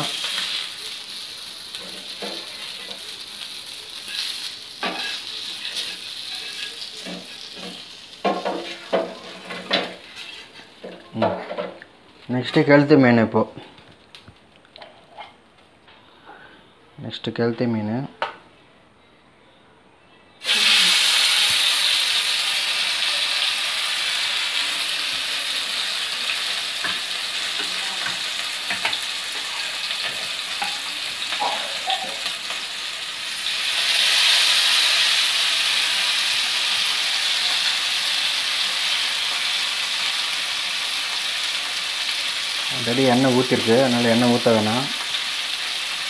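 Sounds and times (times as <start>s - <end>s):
fish sizzling in hot oil: 0.0s - 10.6s, 20.4s - 46.0s.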